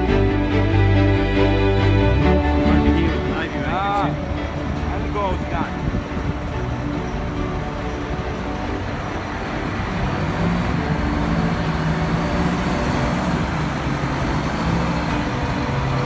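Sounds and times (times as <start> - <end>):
crane engine running under load: 4.1 - 16.0.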